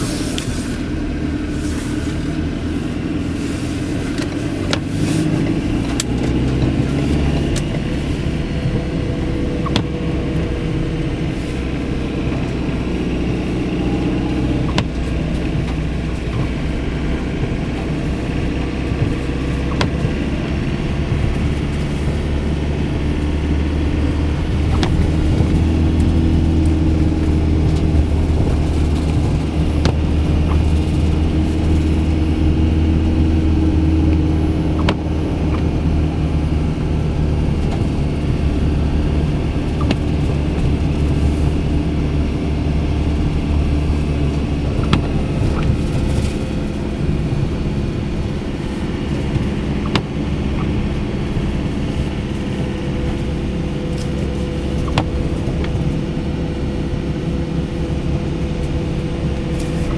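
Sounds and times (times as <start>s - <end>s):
car engine and tyre noise: 0.0s - 59.9s.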